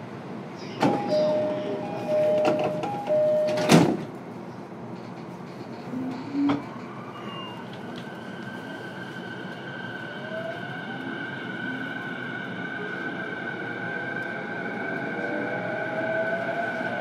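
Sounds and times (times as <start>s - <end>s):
steady hum inside train car: 0.0s - 17.0s
train door two-note chime: 0.8s - 4.0s
sliding doors closing thud: 2.3s - 4.1s.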